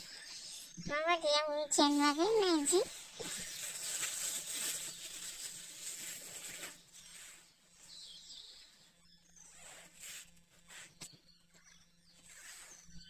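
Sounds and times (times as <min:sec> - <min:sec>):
plastic wrap crinkling: 0:03.2 - 0:07.0.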